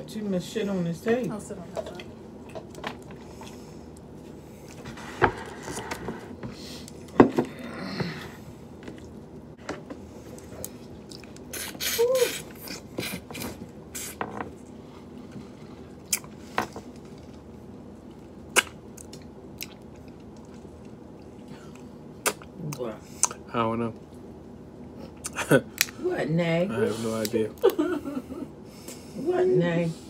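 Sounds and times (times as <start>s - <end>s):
chewing: 10.3s - 23.4s.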